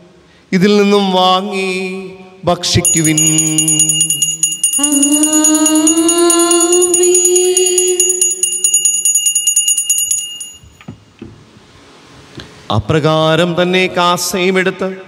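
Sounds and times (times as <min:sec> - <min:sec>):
altar bells ringing: 0:02.9 - 0:10.9.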